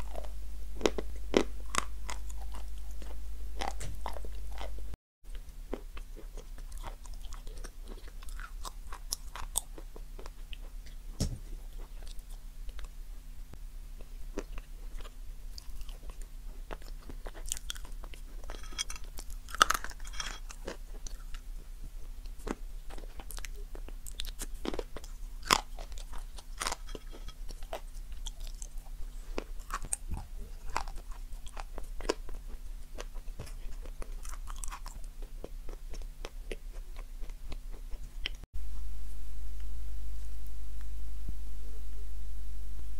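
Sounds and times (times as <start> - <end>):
chewing crunchy food: 0.0 - 13.0, 14.0 - 38.5
steady low hum: 0.0 - 42.9.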